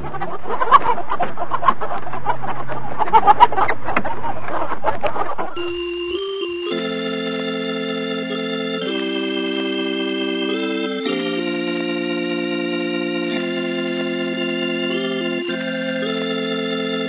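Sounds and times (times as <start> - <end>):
sustained organ chords: 5.6 - 17.0.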